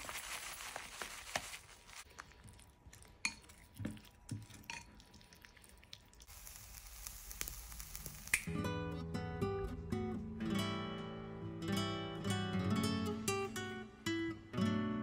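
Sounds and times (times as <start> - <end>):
batter squelching while stirred: 0.0 - 6.3.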